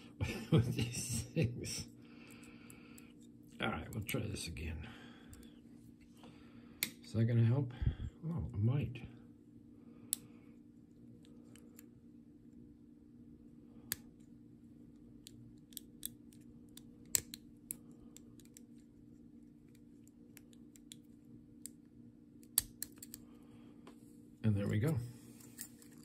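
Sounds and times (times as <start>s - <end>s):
lock picking metallic clicks: 15.2s - 17.8s, 22.4s - 23.2s.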